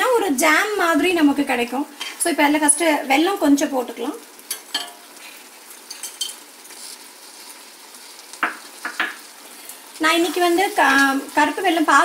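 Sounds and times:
food simmering with soft hiss: 0:00.0 - 0:12.0
spoon knocking against pan: 0:08.4 - 0:09.2.

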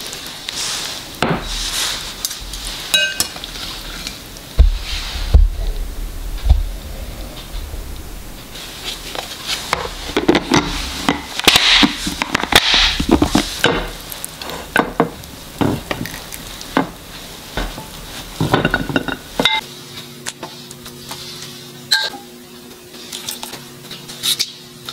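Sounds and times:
plastic containers scraping: 0:04.6 - 0:13.6.

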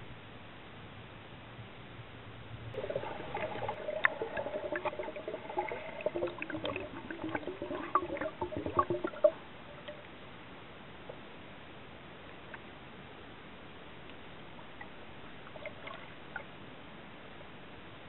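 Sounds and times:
water gurgling and sloshing: 0:02.6 - 0:10.2, 0:14.7 - 0:16.6.

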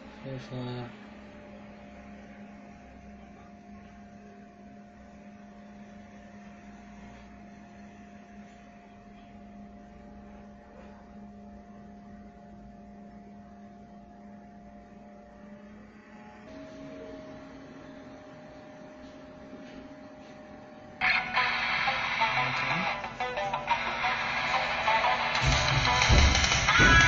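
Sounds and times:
steady hum: 0:00.0 - 0:27.0
higher steady tone: 0:11.5 - 0:27.0.

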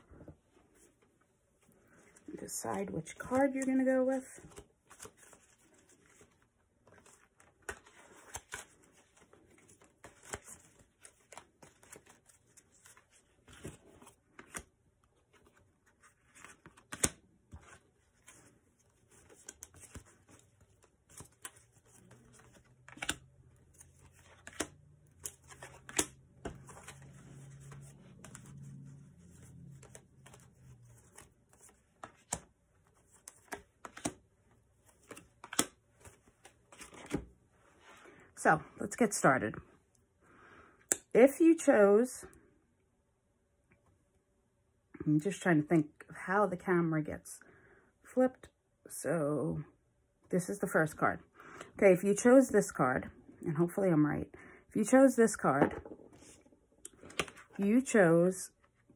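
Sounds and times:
cards slapping and sliding: 0:04.5 - 0:14.7, 0:15.3 - 0:37.3, 0:55.7 - 0:57.6.

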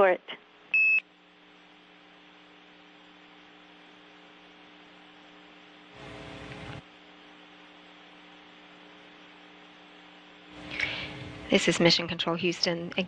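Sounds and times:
radio hiss and hum: 0:01.3 - 0:13.0
burst of radio static: 0:10.5 - 0:12.7.

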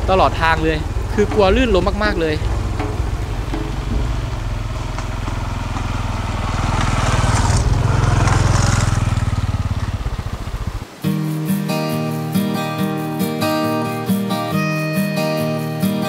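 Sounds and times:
motorcycle riding past: 0:00.0 - 0:11.1
tyres on wet mud: 0:00.0 - 0:11.2
acoustic guitar music: 0:00.0 - 0:16.0.

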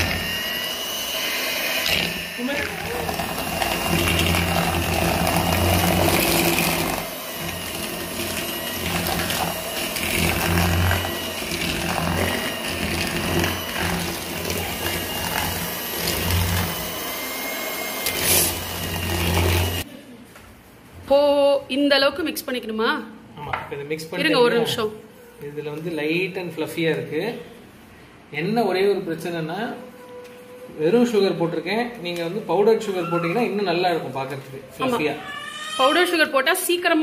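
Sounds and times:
electric hand mixer humming: 0:00.0 - 0:19.9.

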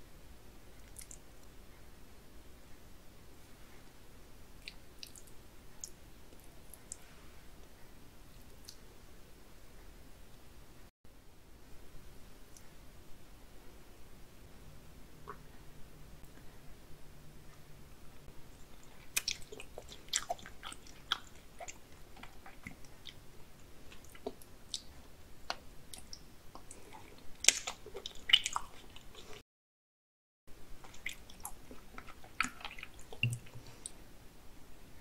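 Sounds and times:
mouth clicks and smacks: 0:00.8 - 0:01.3, 0:04.6 - 0:07.0, 0:08.6 - 0:08.9, 0:15.2 - 0:15.4, 0:18.6 - 0:23.2, 0:23.9 - 0:29.4, 0:30.8 - 0:34.0
biting and chewing raw fish: 0:18.6 - 0:29.4, 0:30.8 - 0:34.0.

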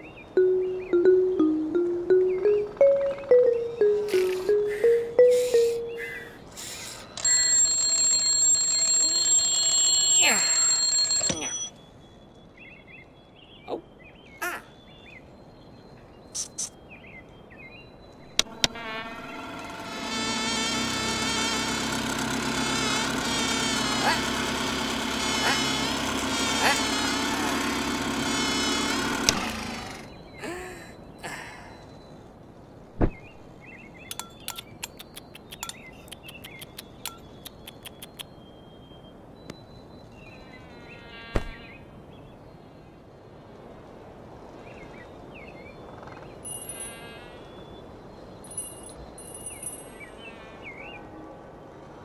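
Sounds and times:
cartoon bee wings buzzing: 0:18.4 - 0:30.1.

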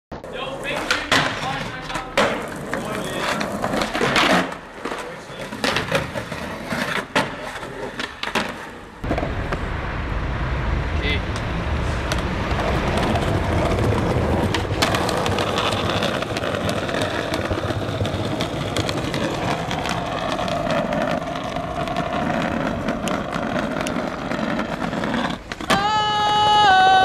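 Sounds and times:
skateboard wheels on pavement: 0:00.1 - 0:27.0
street rumble: 0:00.1 - 0:27.0
skateboard clacks: 0:00.3 - 0:09.6, 0:12.1 - 0:27.0.

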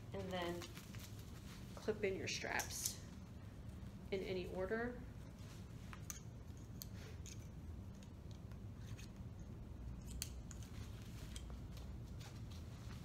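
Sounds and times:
steady low hum: 0:00.0 - 0:13.0
strap rustling: 0:00.1 - 0:02.7.

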